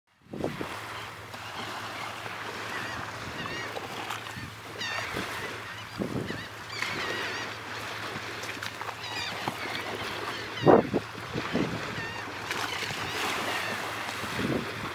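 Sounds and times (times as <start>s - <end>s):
wind and water noise: 0.1s - 14.9s
birds squawking: 1.9s - 7.7s, 8.9s - 14.0s.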